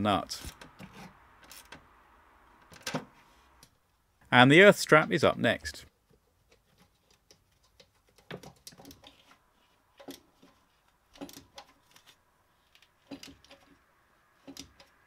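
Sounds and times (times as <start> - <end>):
tools clicking and knocking on metal: 6.5 - 9.3, 10.0 - 12.1, 12.7 - 13.8, 14.4 - 15.0.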